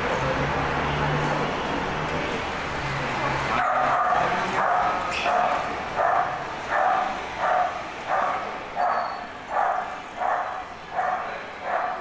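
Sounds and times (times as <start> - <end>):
dog barking: 3.5 - 12.0.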